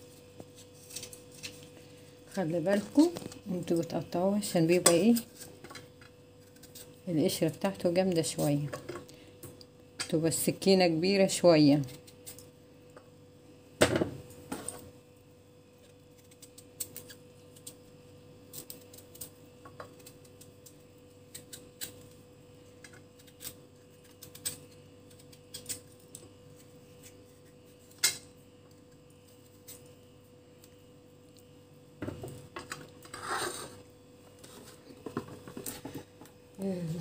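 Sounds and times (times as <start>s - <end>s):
faint steady hum: 0.0s - 37.0s
knife scraping squash rind: 0.5s - 1.6s, 33.0s - 33.8s.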